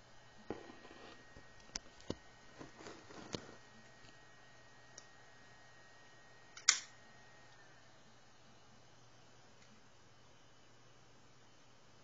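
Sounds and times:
hard drive whine and hum: 0.0 - 12.0.

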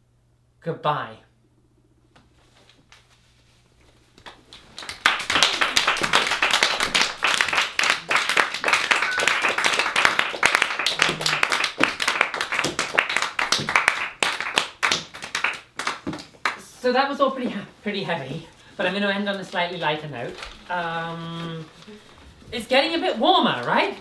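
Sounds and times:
audience applause: 4.7 - 16.0.

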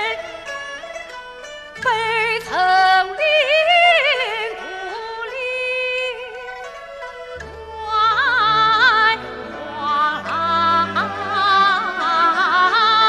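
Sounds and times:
orchestra with vibrato melody: 6.5 - 13.0.

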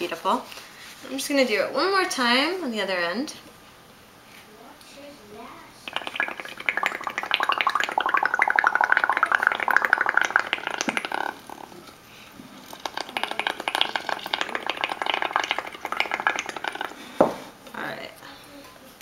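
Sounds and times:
bubbling and gurgling through a straw: 5.9 - 11.8, 12.5 - 17.2.

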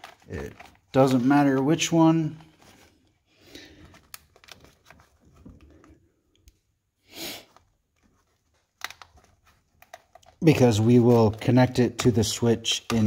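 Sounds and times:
rustling of wiring harness: 0.0 - 6.3.

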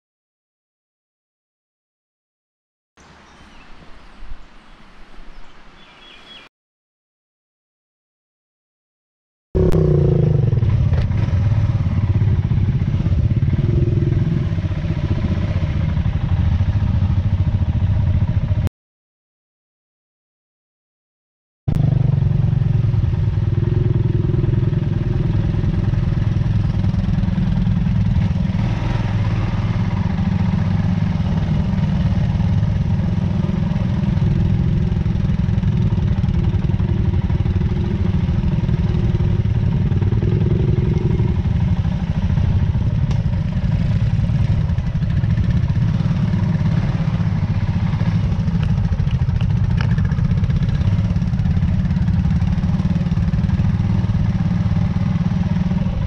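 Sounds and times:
small motorcycle engine running: 21.7 - 56.0.

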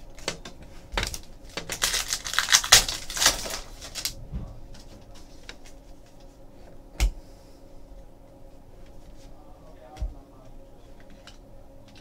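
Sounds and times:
foil wrapper crinkling: 0.1 - 4.2.

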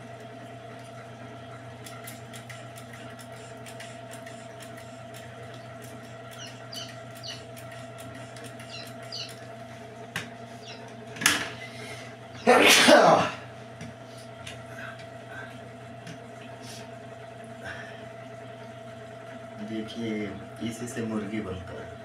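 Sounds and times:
incubator humming: 0.0 - 22.0
chick peeping: 6.3 - 9.4, 10.6 - 10.9.

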